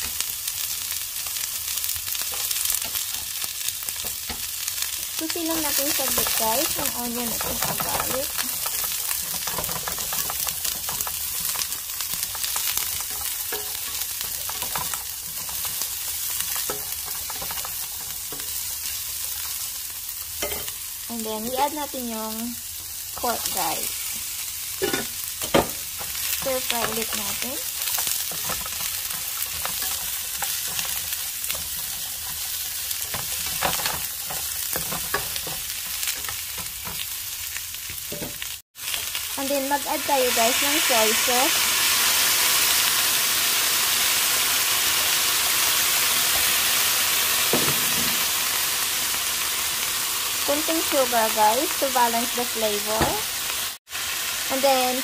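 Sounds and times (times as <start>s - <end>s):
onion and garlic sizzling: 0.0s - 55.0s
spatula scraping and tapping pan: 6.0s - 18.6s, 24.8s - 37.1s.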